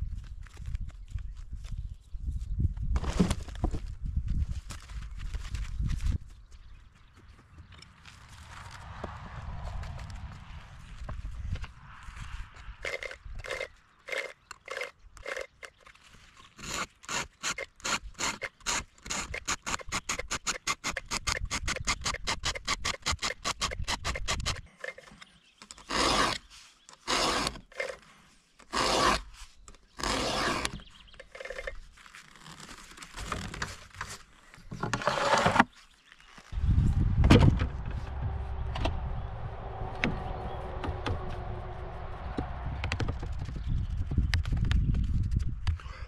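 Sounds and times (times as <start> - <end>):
file rasping on chainsaw chain: 12.8 - 15.8, 16.6 - 24.6, 25.8 - 28.0, 28.7 - 29.3, 30.0 - 31.7.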